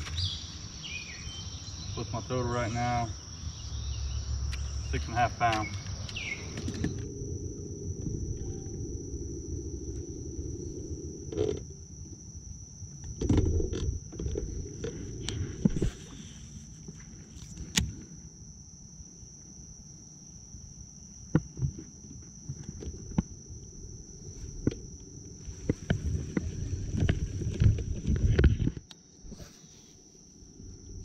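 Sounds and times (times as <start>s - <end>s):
high-pitched insect drone: 0.0s - 31.0s
low rumble: 5.9s - 13.0s.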